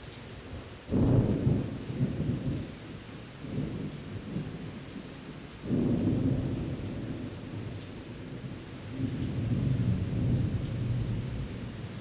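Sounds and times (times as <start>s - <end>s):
steady rain: 0.0s - 12.0s
thunder rumbling: 0.9s - 2.7s, 5.6s - 12.0s.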